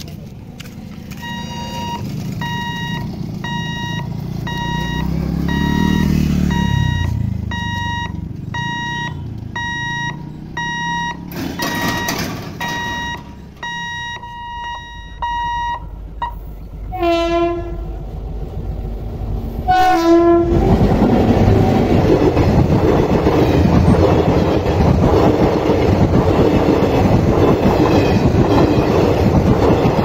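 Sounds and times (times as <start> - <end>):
level crossing warning beeps: 1.1 - 16.5
motorcycle engine passing: 1.7 - 12.2.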